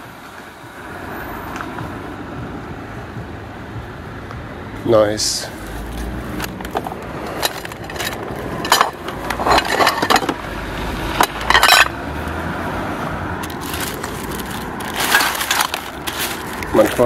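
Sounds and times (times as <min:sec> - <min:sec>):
plates and containers clinking: 0:06.4 - 0:10.4, 0:11.1 - 0:12.0, 0:13.4 - 0:16.6
plastic bags crinkling: 0:06.7 - 0:10.4, 0:13.4 - 0:17.0.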